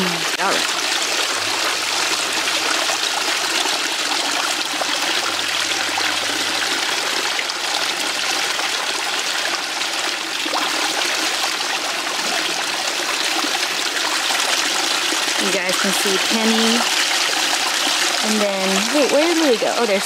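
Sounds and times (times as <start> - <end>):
waterfall splashing: 0.0 - 20.0.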